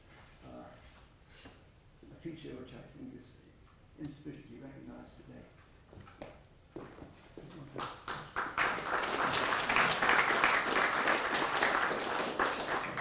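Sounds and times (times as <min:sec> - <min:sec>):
audience applauding: 0:07.8 - 0:13.0.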